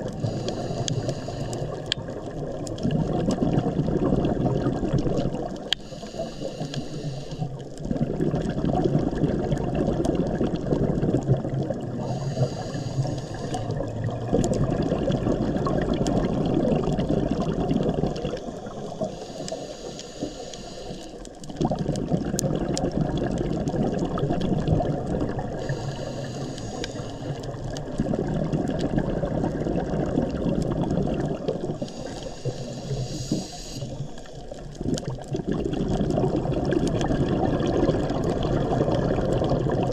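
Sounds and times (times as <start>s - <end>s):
regulator inhale hiss: 0.0s - 2.0s, 5.6s - 7.8s, 12.0s - 13.8s, 18.2s - 21.5s, 25.5s - 27.8s, 31.7s - 34.7s
exhaled air bubbling: 0.0s - 39.9s.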